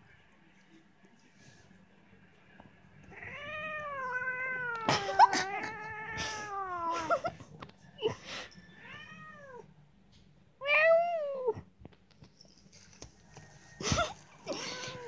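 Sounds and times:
cat yowling: 3.1 - 7.2, 14.5 - 15.0.

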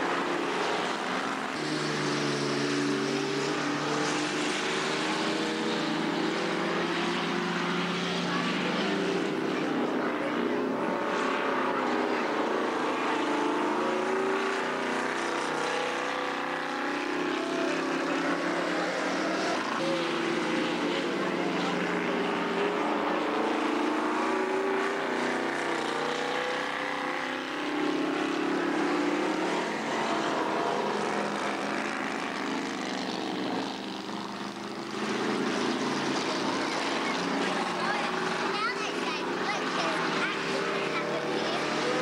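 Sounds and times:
stock car engines racing: 0.0 - 42.0.

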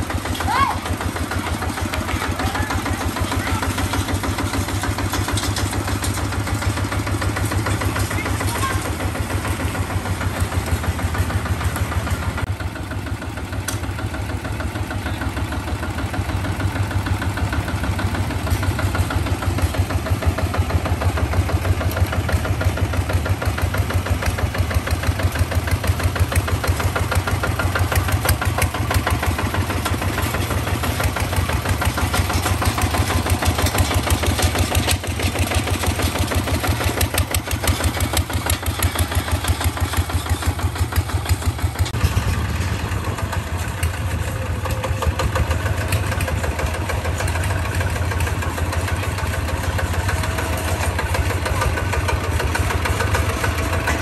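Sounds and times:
diesel engine chugging: 0.0 - 54.0.

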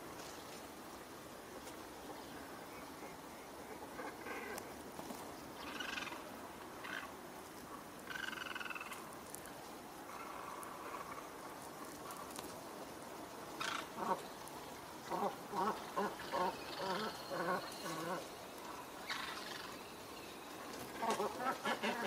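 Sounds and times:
ducks quacking: 21.0 - 22.0.

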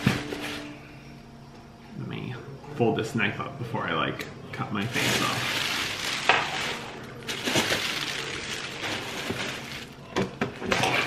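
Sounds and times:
plastic packaging rustling: 4.8 - 11.0.

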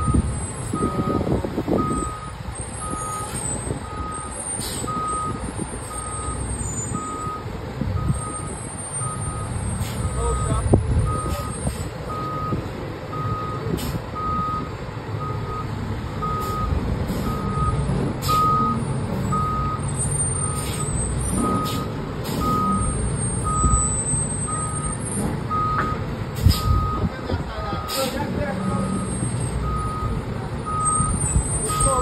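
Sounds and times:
backup alarm beeping: 0.0 - 20.7, 21.4 - 26.0.

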